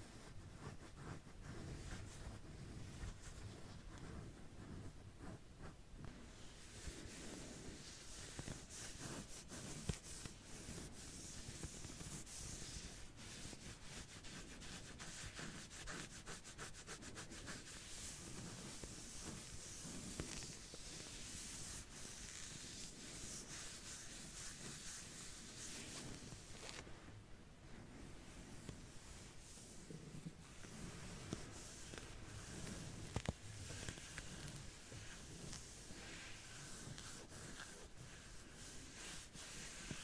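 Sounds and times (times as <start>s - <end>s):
back scratching: 28.4s - 40.0s.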